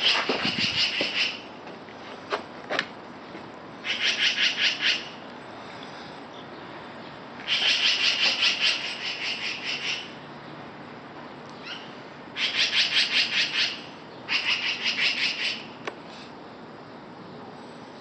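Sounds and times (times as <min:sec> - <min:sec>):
magpies chattering alarm call: 0:00.0 - 0:01.5, 0:03.8 - 0:05.2, 0:07.4 - 0:10.4, 0:11.6 - 0:15.8.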